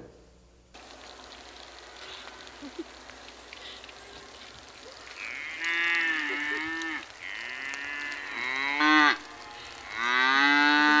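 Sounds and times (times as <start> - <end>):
calf bawling: 2.0 - 11.0.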